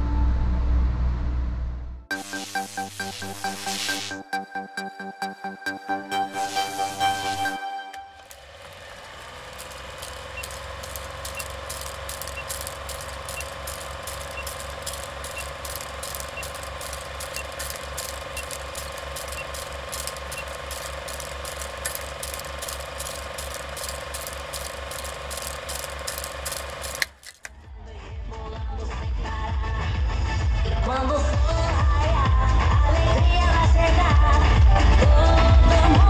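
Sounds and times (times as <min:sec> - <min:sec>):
machinery clicking and humming: 0:02.1 - 0:27.6
short high beep: 0:05.9 - 0:08.3.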